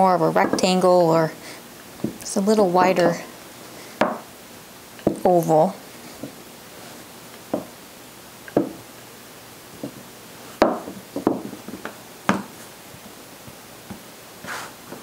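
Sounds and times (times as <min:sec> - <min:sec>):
rolling pin knocking on counter: 0:04.0 - 0:04.3, 0:07.5 - 0:07.7, 0:08.5 - 0:08.8, 0:10.6 - 0:12.5.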